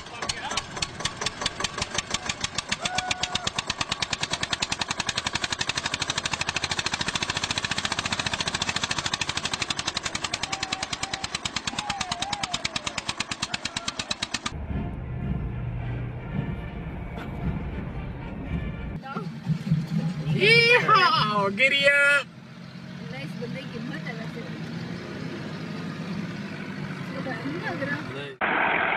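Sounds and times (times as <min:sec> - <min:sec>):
tractor engine chugging: 0:00.0 - 0:22.2
low engine rumble: 0:00.0 - 0:24.6.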